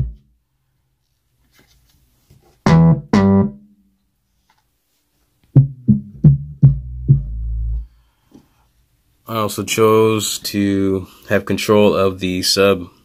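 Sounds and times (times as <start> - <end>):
short plucked synth bass notes: 5.6 - 7.8.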